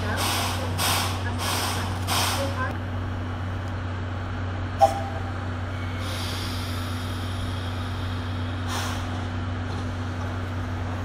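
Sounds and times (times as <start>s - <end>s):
steam hissing: 0.0s - 2.6s, 5.8s - 9.2s
locomotive low hum: 0.0s - 11.0s.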